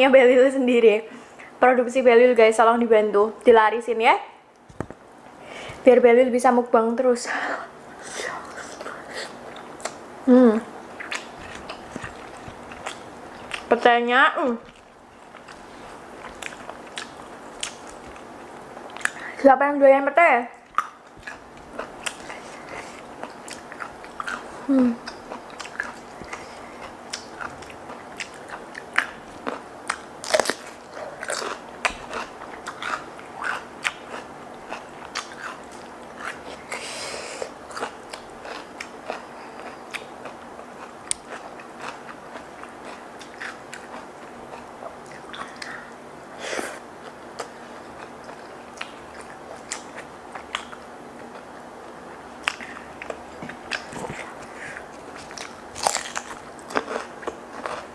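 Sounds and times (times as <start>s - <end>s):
biting and chewing food: 10.8s - 19.3s, 20.6s - 36.8s, 37.5s - 46.0s, 47.0s - 57.9s.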